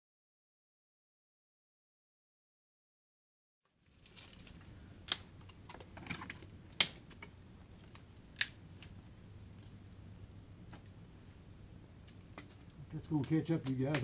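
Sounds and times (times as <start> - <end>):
campfire crackling: 3.7 - 14.0
sharp fire pops: 13.1 - 14.0.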